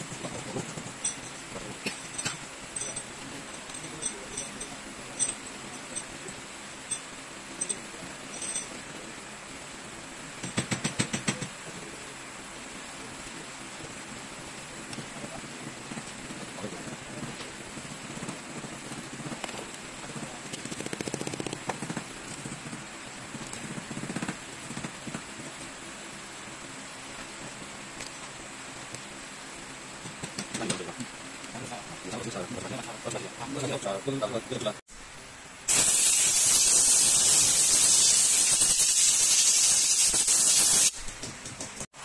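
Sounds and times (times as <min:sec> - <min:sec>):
steady hiss: 0:00.0 - 0:42.0
fast ticks: 0:20.4 - 0:22.6
high-pitched hiss: 0:35.6 - 0:41.1.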